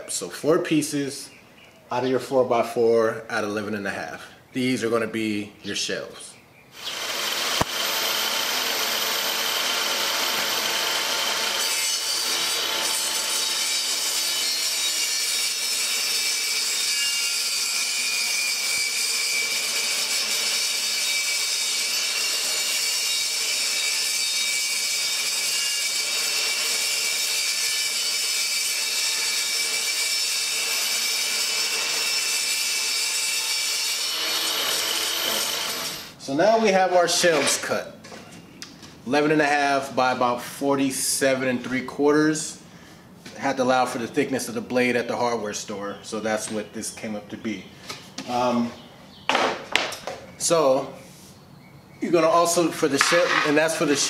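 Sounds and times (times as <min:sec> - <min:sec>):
table saw cutting plywood: 0:06.8 - 0:36.2, 0:53.0 - 0:54.0.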